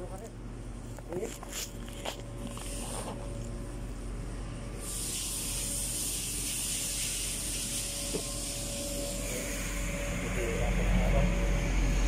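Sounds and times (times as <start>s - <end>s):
steady hiss: 4.8s - 9.8s.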